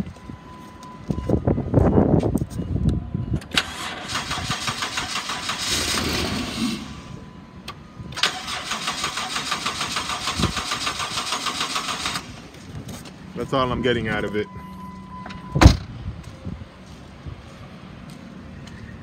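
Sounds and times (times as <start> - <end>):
car engine cranking on starter: 3.4 - 7.1, 8.1 - 12.5.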